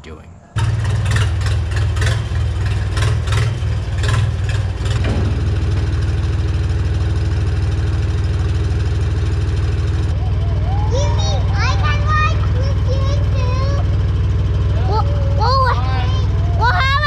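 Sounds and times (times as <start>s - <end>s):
sharp clanking knocks: 0.6s - 10.2s
tractor engine running: 0.6s - 17.0s.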